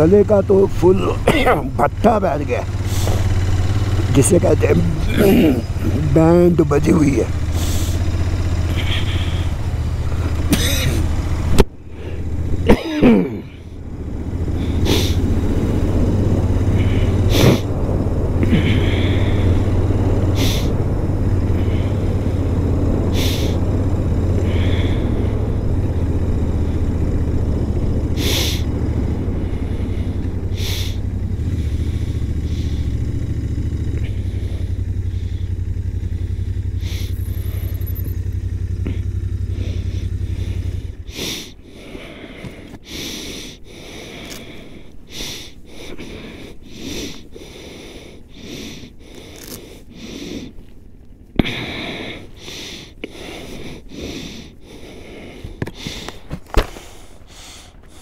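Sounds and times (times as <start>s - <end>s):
motorcycle engine running: 0.0s - 58.0s
wind and road noise: 0.0s - 58.0s
man coughing: 0.9s - 2.0s, 4.8s - 6.1s, 10.3s - 11.1s, 12.6s - 13.7s.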